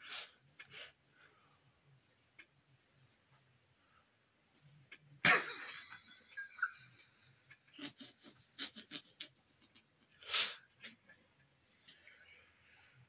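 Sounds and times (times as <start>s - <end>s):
person laughing: 5.3s - 10.0s.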